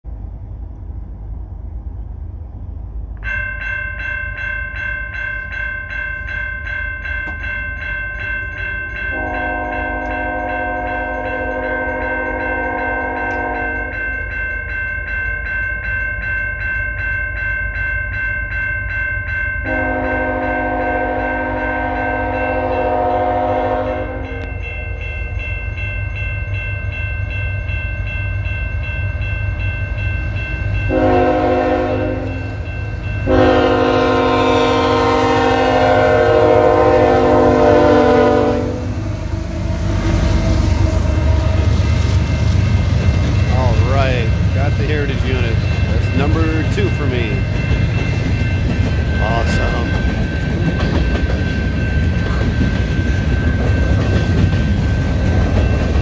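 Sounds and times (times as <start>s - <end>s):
low train rumble: 0.0s - 56.0s
crossing signal bell ringing: 3.2s - 56.0s
train horn blasts: 9.1s - 14.1s, 19.6s - 24.6s, 30.9s - 32.5s, 33.2s - 41.9s.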